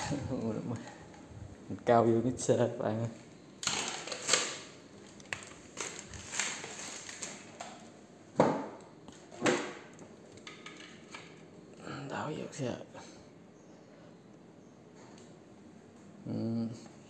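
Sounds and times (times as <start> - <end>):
rustling of objects: 3.1 - 8.0
objects knocking and clattering: 3.6 - 4.6, 5.3 - 11.4.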